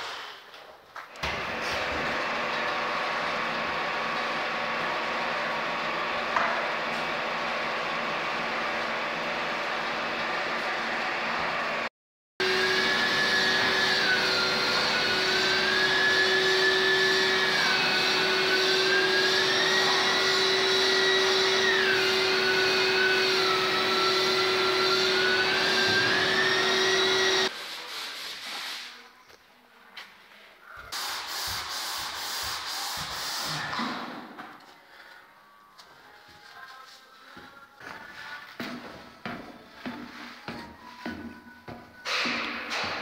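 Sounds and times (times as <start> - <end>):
drywall sander motor whine: 12.4 - 27.5
sanding rubbing: 15.0 - 29.1, 31.0 - 33.6.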